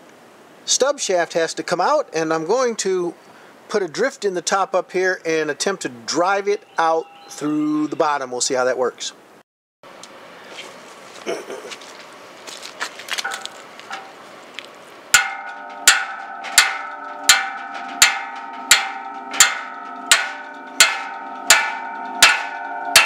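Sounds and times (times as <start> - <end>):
hammer striking metal punch: 15.2 - 23.0.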